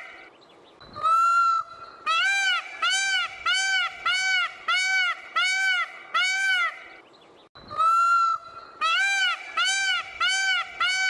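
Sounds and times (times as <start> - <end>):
peacock honking calls: 1.0 - 7.0, 7.7 - 11.0.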